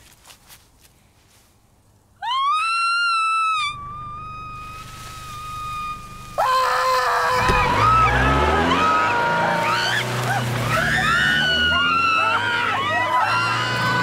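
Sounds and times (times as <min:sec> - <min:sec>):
woman screaming: 0:02.2 - 0:14.0
deep rumble: 0:03.7 - 0:09.6
man screaming: 0:05.2 - 0:14.0.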